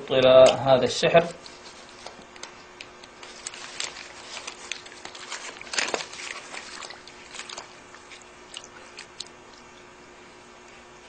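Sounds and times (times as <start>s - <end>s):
wet paper crinkling and squelching: 0.4s - 9.7s
paper crackling: 1.0s - 9.2s.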